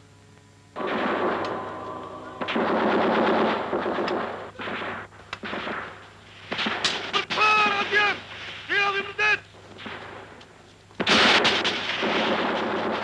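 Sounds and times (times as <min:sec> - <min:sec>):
separate gunshots: 0:00.8 - 0:13.0
machine-gun bursts: 0:02.4 - 0:08.1, 0:11.0 - 0:13.0.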